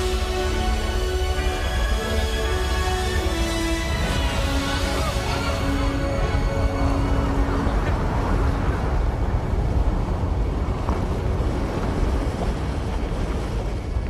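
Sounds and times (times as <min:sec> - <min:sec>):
held music notes: 0:00.0 - 0:09.0
rushing roar of water: 0:00.0 - 0:14.0.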